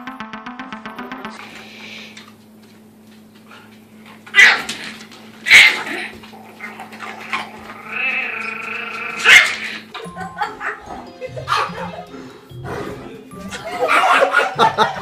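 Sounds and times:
low electrical hum: 0:00.1 - 0:15.0
puppy yapping: 0:04.3 - 0:09.9
dog growling: 0:05.7 - 0:09.9.

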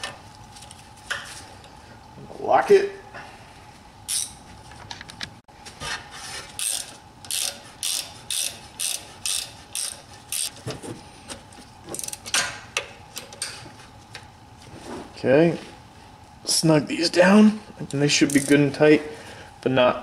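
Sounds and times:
ratchet wrench clicking: 0:04.1 - 0:04.4, 0:06.6 - 0:10.5, 0:18.3 - 0:18.6.

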